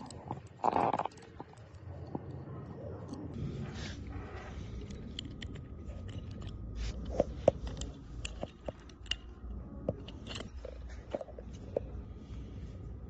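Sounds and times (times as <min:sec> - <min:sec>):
low steady rumble: 0:00.0 - 0:13.0
small metal clicks and taps: 0:04.8 - 0:11.9.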